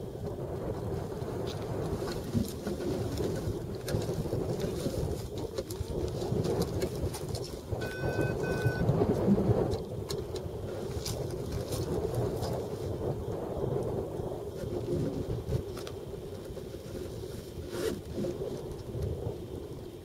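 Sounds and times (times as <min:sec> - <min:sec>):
wind buffeting microphone: 0:00.0 - 0:20.0
short electronic beeps: 0:07.8 - 0:08.9.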